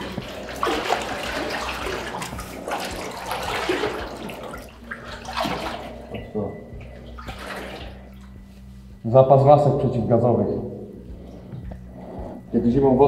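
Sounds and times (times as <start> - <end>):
water sloshing as person wades: 0.0 - 9.4.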